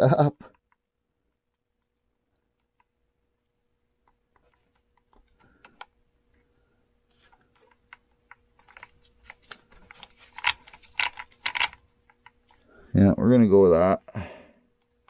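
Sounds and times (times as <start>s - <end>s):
metal parts clicking and tapping: 4.0s - 12.8s.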